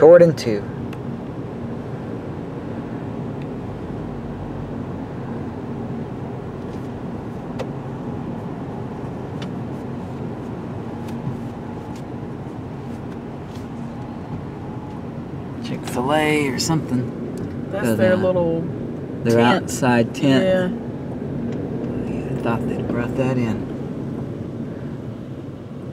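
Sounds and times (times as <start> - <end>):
car road noise on wet road: 0.0 - 25.9.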